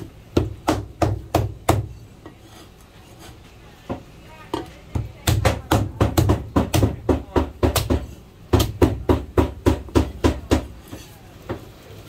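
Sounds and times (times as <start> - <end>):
cleaver chopping on cutting board: 4.9 - 11.0.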